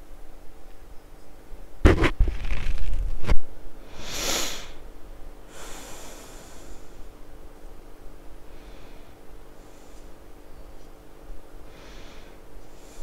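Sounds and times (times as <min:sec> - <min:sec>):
thumps on microphone: 0:01.8 - 0:03.4
breath into microphone: 0:11.7 - 0:13.0.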